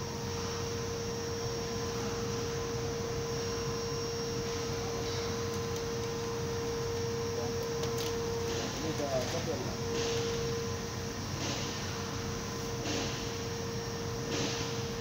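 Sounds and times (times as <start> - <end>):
steady hum with held tone: 0.0 - 15.0.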